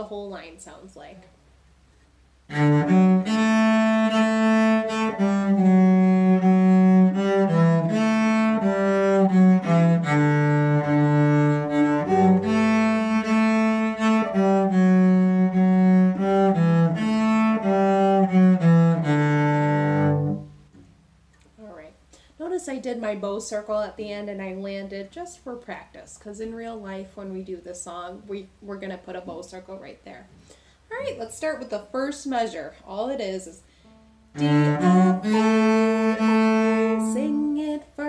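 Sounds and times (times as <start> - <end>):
cello bowed melody: 2.5 - 20.8, 33.8 - 37.9.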